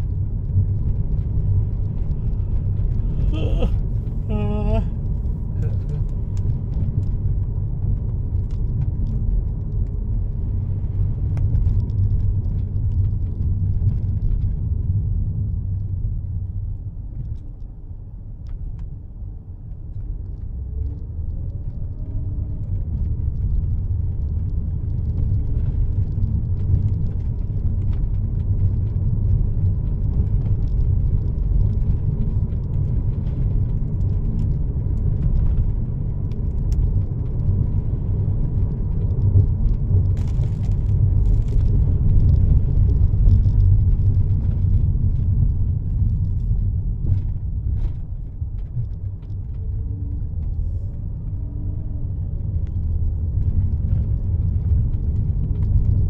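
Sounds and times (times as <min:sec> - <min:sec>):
car engine and tyres on wet road: 0:00.0 - 0:56.0.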